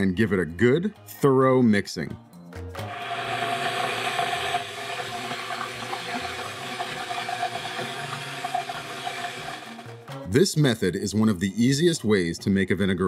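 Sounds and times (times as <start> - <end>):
stick blender motor whine: 2.8 - 9.9
liquid churning: 2.9 - 9.9.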